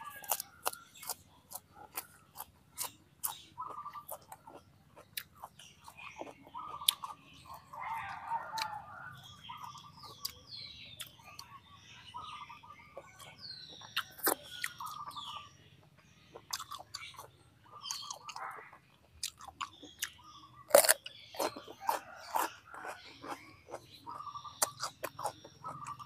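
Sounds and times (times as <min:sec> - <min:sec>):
crunchy vegetable bite: 0:00.0 - 0:08.8, 0:13.9 - 0:15.0, 0:16.4 - 0:18.6, 0:19.2 - 0:26.0
chewing and mouth smacking: 0:00.0 - 0:11.6, 0:12.9 - 0:15.3, 0:15.9 - 0:26.0.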